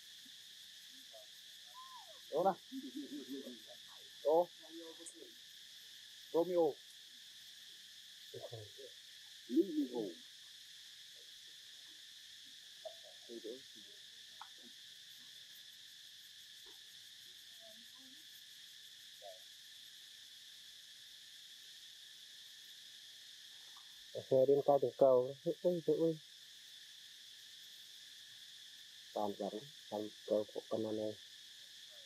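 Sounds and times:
high insect chorus: 0.0s - 32.0s
short pitched calls: 1.1s - 3.6s.

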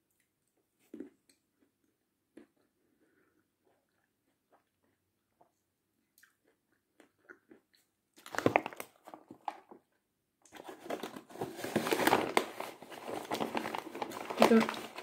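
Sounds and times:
paper bag crinkling: 10.6s - 15.0s.

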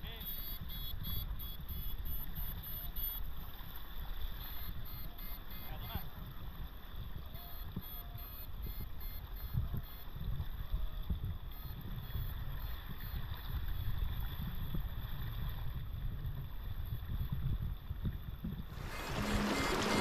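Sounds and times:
wind rumbling on microphone: 5.8s - 20.0s
river water rushing: 18.7s - 20.0s.

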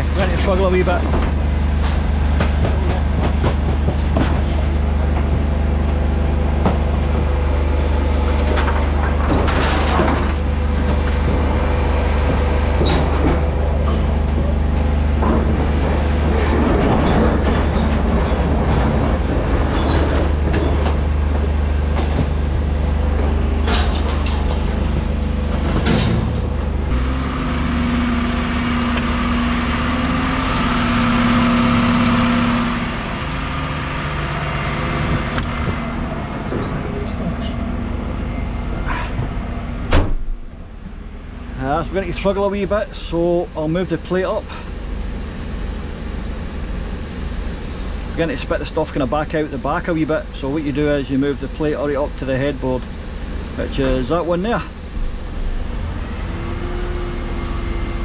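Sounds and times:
engine and hydraulic drone: 0.0s - 58.0s
bin clanking and rattling: 8.4s - 11.5s.

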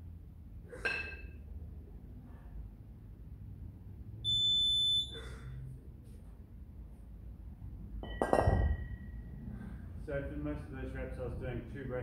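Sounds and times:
electronic timer beep: 4.2s - 5.2s
kettlebells clanking on floor: 8.0s - 9.1s.

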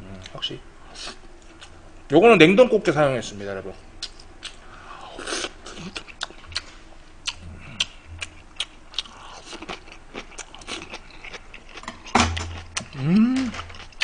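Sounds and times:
chewing crab shell: 4.0s - 6.7s, 7.3s - 14.0s.

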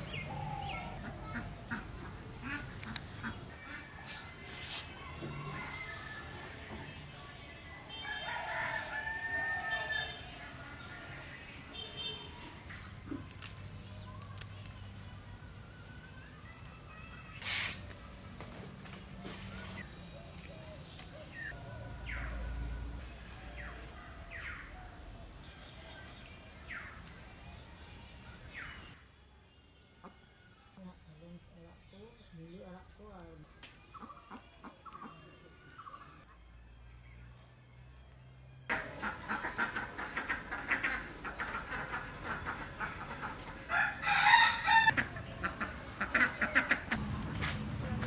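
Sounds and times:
rooster crowing: 8.0s - 10.3s, 43.7s - 45.0s
chickens clucking: 38.7s - 43.9s, 44.9s - 47.1s.

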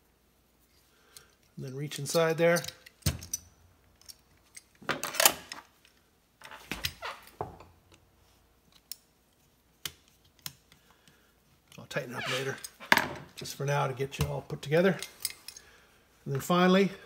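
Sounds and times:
screwdriver clinking on metal parts: 1.2s - 5.6s.

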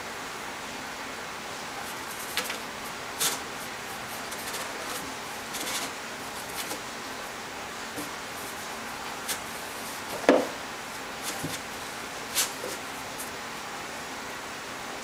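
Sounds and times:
steady hiss: 0.0s - 15.0s
cat paws scratching cardboard: 1.8s - 13.4s.

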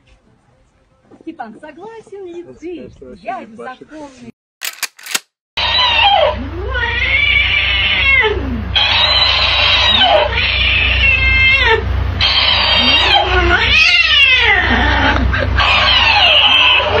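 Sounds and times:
cat yowling: 5.7s - 17.0s.

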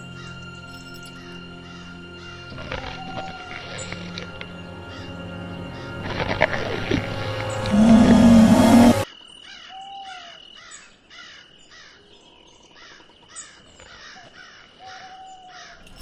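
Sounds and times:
animal calls: 1.6s - 9.0s
rising and falling tones: 6.1s - 9.0s
loud pitched cry: 7.7s - 9.0s.

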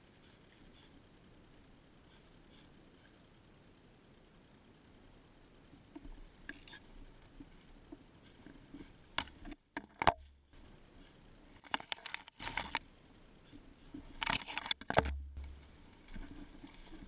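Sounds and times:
branches scraping against camera housing: 6.4s - 17.0s.

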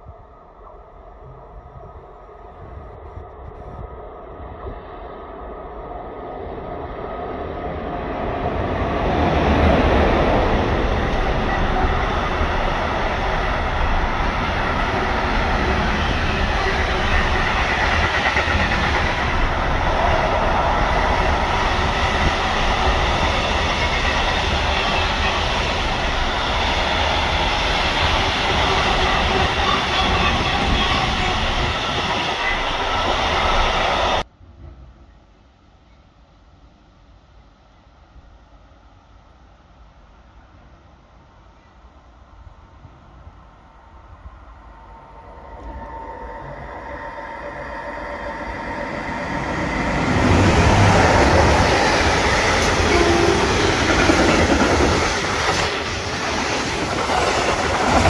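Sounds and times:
freight train passing: 4.0s - 35.1s, 42.8s - 58.0s.

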